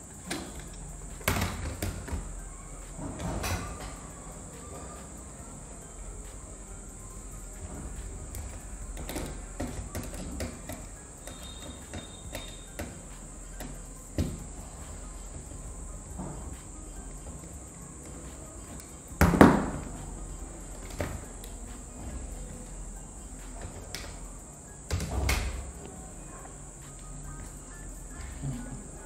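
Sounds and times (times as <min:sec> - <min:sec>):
small clicks and taps of tools: 0:08.3 - 0:14.5.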